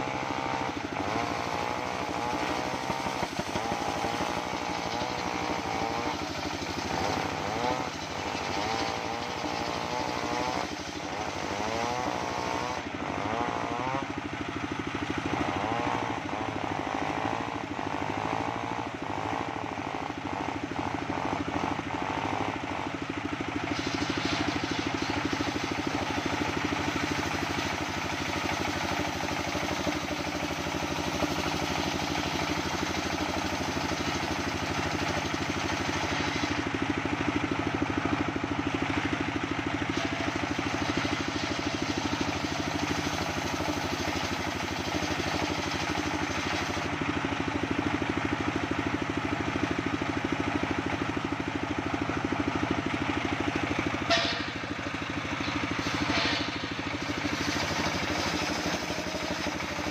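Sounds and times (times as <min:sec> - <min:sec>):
circular saw running: 0:00.0 - 0:59.9
saw blade cutting hiss: 0:01.1 - 0:12.9, 0:23.6 - 0:36.7, 0:54.0 - 0:59.9.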